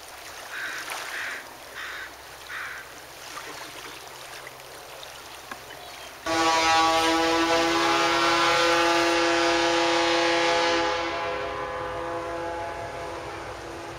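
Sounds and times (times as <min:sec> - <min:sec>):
loud multi-tone horn blast: 0:06.2 - 0:13.9.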